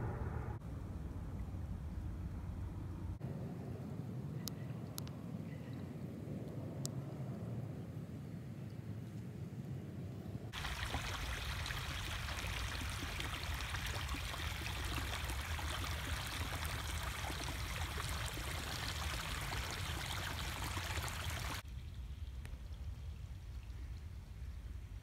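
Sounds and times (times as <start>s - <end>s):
creek water flowing and splashing: 10.6s - 21.6s.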